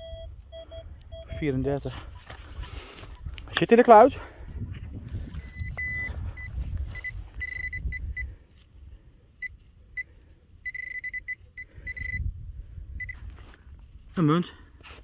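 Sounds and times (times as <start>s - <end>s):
metal detector beeping: 0.0s - 2.4s, 5.4s - 8.3s, 9.4s - 12.2s, 13.0s - 13.2s.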